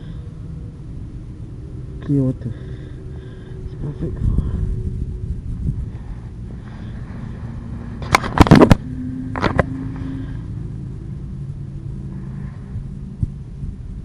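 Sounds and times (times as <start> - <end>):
wind buffeting microphone: 2.8 - 14.0.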